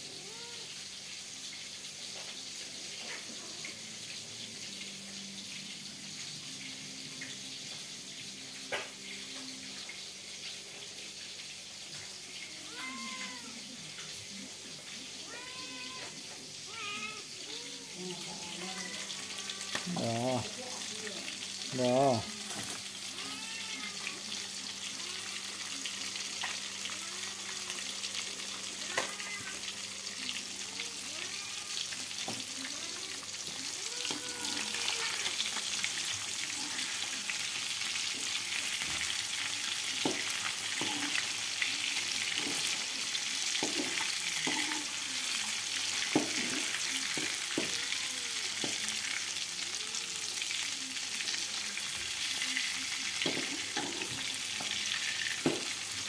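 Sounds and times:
cat meowing: 0:00.0 - 0:00.8, 0:12.4 - 0:13.9, 0:14.9 - 0:25.8, 0:26.8 - 0:28.0, 0:28.6 - 0:35.6, 0:36.4 - 0:37.3, 0:40.8 - 0:41.2, 0:44.3 - 0:45.1, 0:47.3 - 0:48.8
fish sizzling in hot oil: 0:00.0 - 0:56.0.

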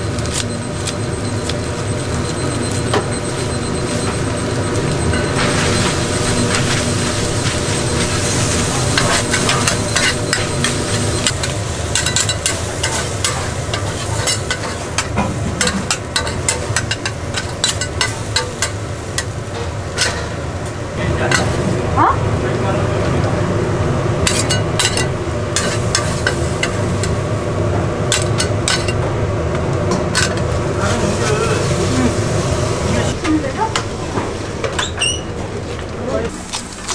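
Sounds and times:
steady low hum: 0:00.0 - 0:34.8
food sizzling in a pan: 0:00.2 - 0:19.5, 0:25.6 - 0:27.2
utensils clacking on metal pan: 0:07.4 - 0:20.4, 0:24.2 - 0:27.2, 0:28.1 - 0:29.0, 0:29.9 - 0:30.4.

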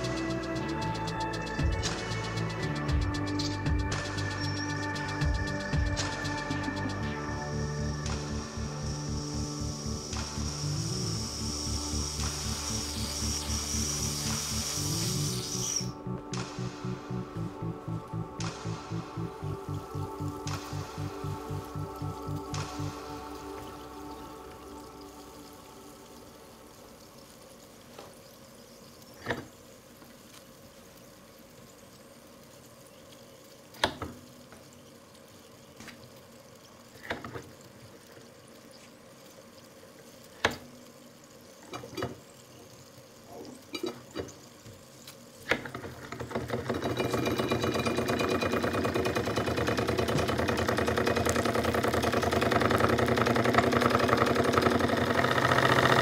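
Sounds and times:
steam engine spits and clicks: 0:00.0 - 0:17.2, 0:27.0 - 0:56.0
steam engine rapid exhaust beat: 0:00.0 - 0:25.4, 0:46.4 - 0:56.0.

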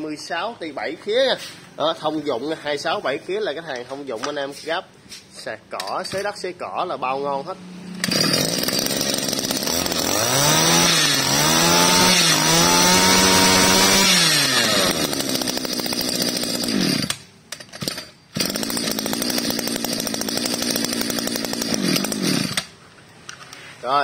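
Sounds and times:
brush cutter engine revving and idling: 0:07.9 - 0:22.7.

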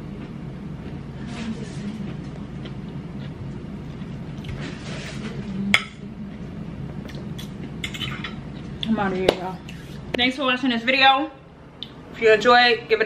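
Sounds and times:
low background hum: 0:00.0 - 0:13.0
fork clinking against plate: 0:07.8 - 0:08.4.

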